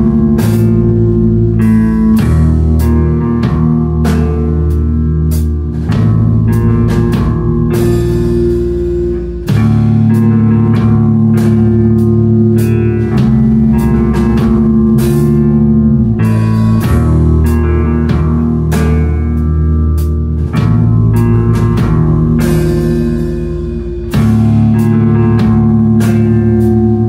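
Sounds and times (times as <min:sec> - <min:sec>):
rock band playing: 0:00.0 - 0:27.0.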